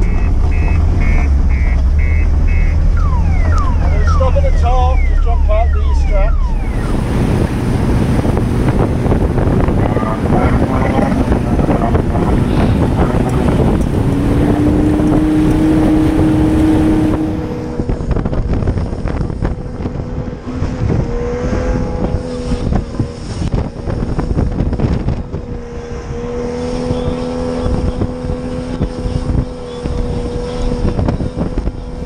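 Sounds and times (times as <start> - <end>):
hull pounding through waves: 0.0 - 25.6
wind on microphone: 0.0 - 32.0
outboard engine running: 5.0 - 21.1.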